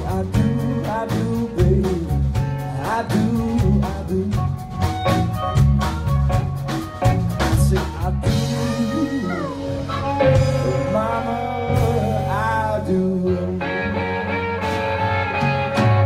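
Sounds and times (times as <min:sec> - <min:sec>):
drum kit beat: 0:00.0 - 0:13.0, 0:14.6 - 0:16.0
electric bass: 0:00.0 - 0:16.0
electric guitar: 0:00.0 - 0:16.0
harmonica bending notes: 0:04.5 - 0:12.8.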